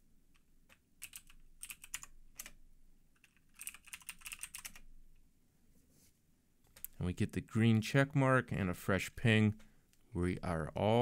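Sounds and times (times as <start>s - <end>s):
typing on computer keyboard: 0.3s - 2.6s, 3.2s - 4.9s.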